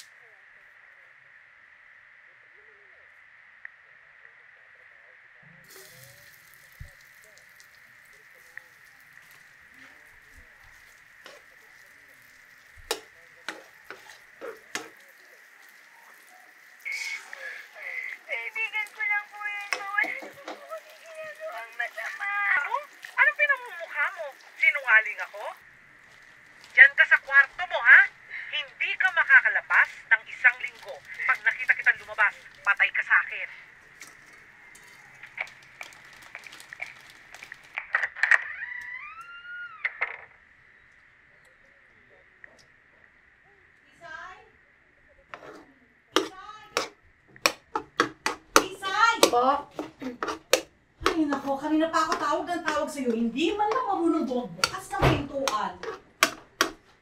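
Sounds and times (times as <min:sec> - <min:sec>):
sauce simmering: 0:05.6 - 0:37.8, 0:45.4 - 0:57.0
faint sizzle of frying: 0:05.6 - 0:37.9, 0:40.7 - 0:57.0
spatula scraping frying pan: 0:10.7 - 0:15.2, 0:45.4 - 0:56.9.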